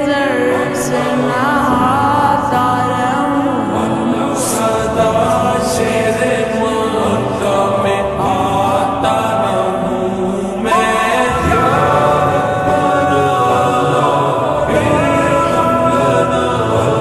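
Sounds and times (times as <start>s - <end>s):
slowed reverb vocal singing: 0.0s - 17.0s.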